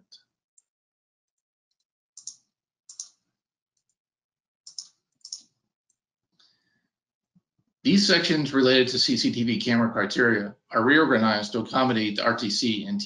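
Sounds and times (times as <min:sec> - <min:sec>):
computer mouse clicks: 0:01.7 - 0:03.2, 0:04.7 - 0:05.5.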